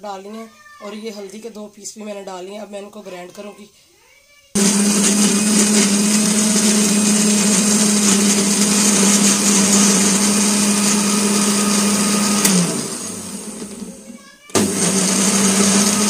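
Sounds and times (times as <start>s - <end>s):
electric blender motor running: 4.6s - 16.0s.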